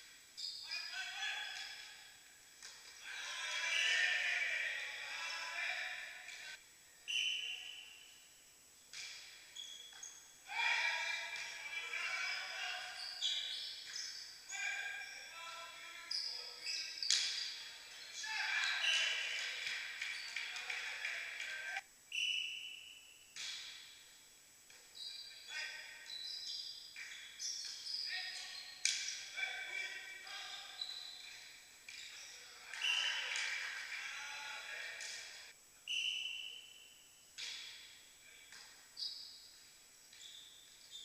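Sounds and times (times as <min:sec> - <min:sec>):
volleyball hits echoing in gym: 0:01.4 - 0:03.0, 0:08.9 - 0:11.6, 0:13.3 - 0:15.0, 0:16.7 - 0:24.1, 0:25.9 - 0:29.4, 0:30.8 - 0:34.0, 0:34.6 - 0:39.5
referee's whistle: 0:07.1 - 0:08.2, 0:21.1 - 0:23.8, 0:35.9 - 0:37.7.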